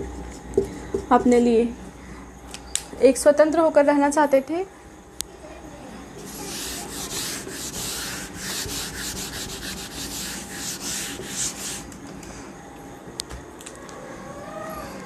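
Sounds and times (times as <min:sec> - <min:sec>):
eraser rubbing on whiteboard: 0:06.2 - 0:11.9.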